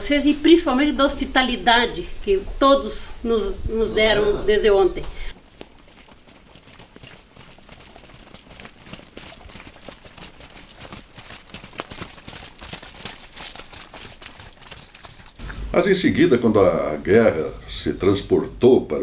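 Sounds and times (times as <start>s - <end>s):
hooves on muddy road: 4.7s - 16.0s.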